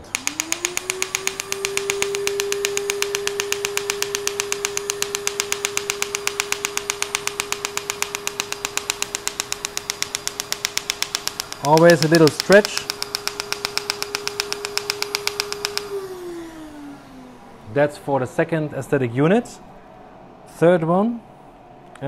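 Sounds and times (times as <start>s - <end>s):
laser pulses banging: 0.0s - 16.0s
steady machine hum: 0.0s - 18.7s.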